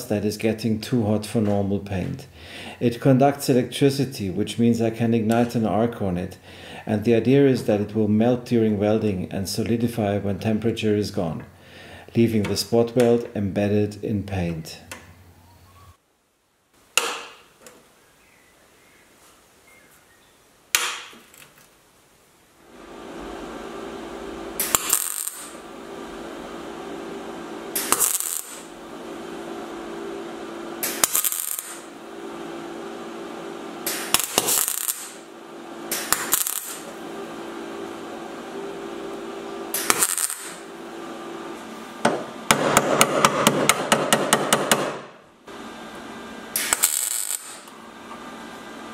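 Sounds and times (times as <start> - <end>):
welding arc crackling: 22.6 - 41.1, 45.5 - 47.9
welder hum: 22.6 - 48.9.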